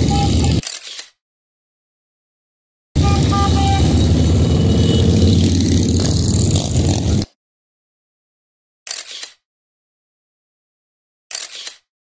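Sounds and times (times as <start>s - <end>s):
motorcycle engines revving: 0.0s - 0.6s, 3.0s - 7.3s.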